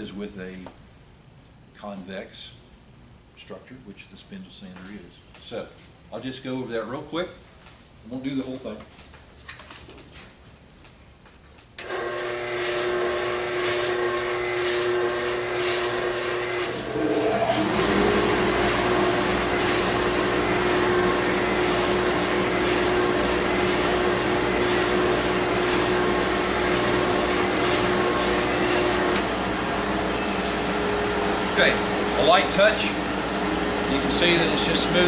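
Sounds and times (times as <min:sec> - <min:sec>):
motor spinning up: 0:11.8 - 0:35.0
workshop motor running: 0:11.8 - 0:35.0
wood sanding: 0:11.9 - 0:35.0.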